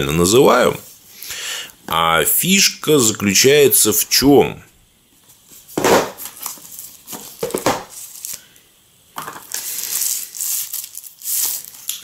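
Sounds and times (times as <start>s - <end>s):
plastic sleeve crinkling: 5.6s - 8.5s, 9.3s - 12.0s.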